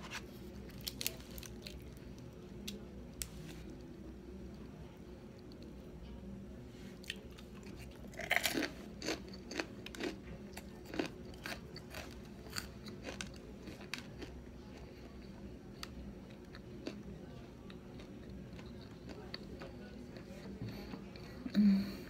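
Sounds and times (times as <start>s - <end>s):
crunching bites and chewing: 0.6s - 2.0s, 7.0s - 14.9s.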